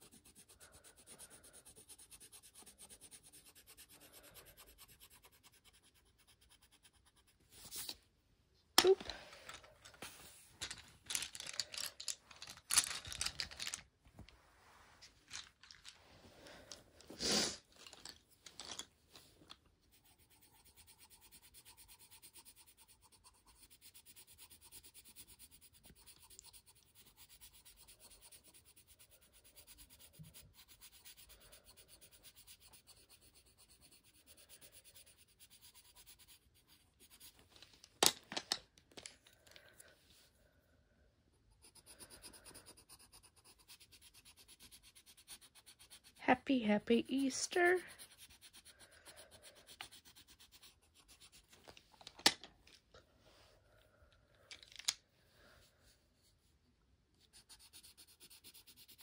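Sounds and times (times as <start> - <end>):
pencil scratching on paper: 0.0 - 8.0, 19.8 - 37.5, 41.5 - 51.6, 57.2 - 59.0
pencils rustling and knocking: 8.7 - 19.7, 37.0 - 40.3, 46.6 - 48.2, 48.9 - 53.4, 54.3 - 55.0.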